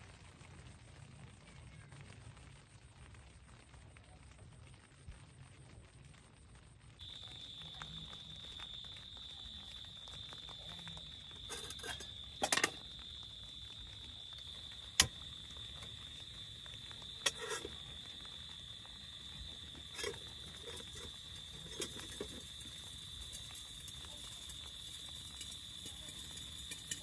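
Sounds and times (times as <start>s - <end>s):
rain pattering on tent: 0.0s - 27.0s
cooking pot and stove knocking: 11.4s - 12.9s.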